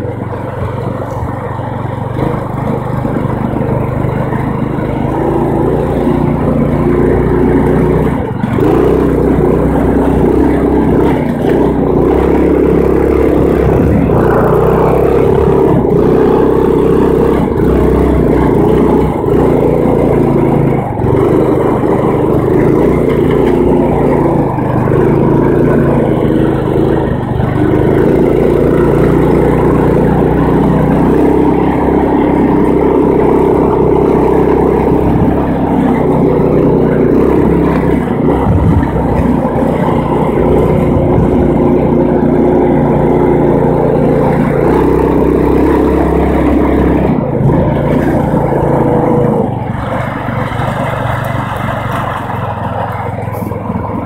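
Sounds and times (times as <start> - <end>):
riding lawn mower engine: 0.0 - 54.0.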